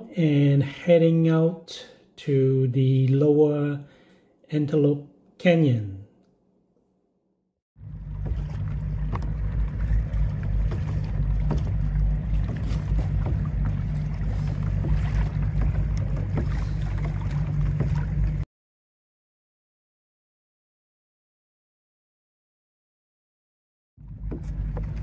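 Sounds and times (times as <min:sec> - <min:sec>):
water splashing and lapping: 0:07.8 - 0:18.5, 0:24.0 - 0:25.0.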